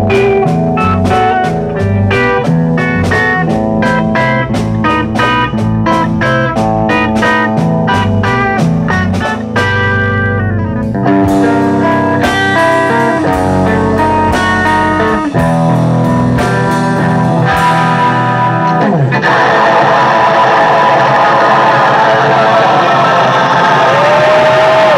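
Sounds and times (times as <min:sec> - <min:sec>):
drum and cymbal hits: 0:00.0 - 0:10.0, 0:11.0 - 0:18.5
electric guitar riffs: 0:00.0 - 0:24.9
live metal band playing: 0:00.0 - 0:24.9.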